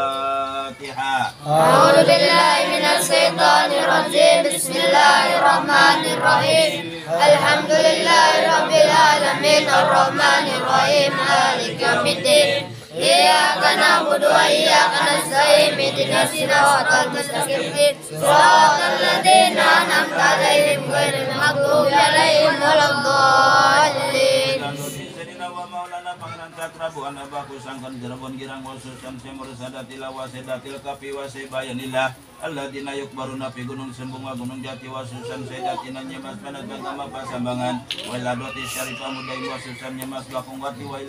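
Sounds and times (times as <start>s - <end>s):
group chanting in unison: 1.4s - 25.4s.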